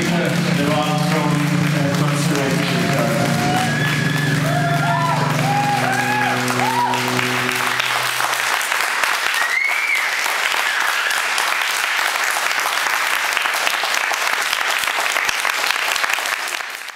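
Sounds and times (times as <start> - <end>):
low steady electronic drone: 0.0 - 9.3
audience applauding: 0.0 - 16.9.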